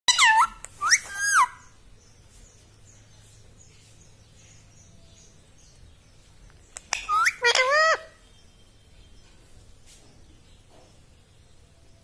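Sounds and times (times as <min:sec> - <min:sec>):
parakeet calls: 0:00.1 - 0:01.8, 0:06.8 - 0:08.4
soft high chirps: 0:00.1 - 0:02.7, 0:06.5 - 0:10.1.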